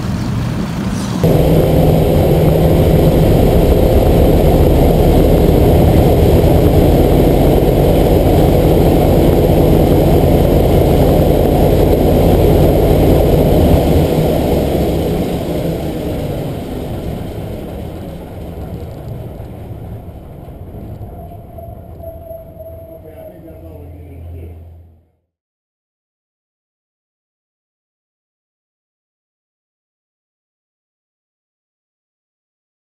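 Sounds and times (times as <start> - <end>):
radial aircraft engine running: 0.4 - 25.0.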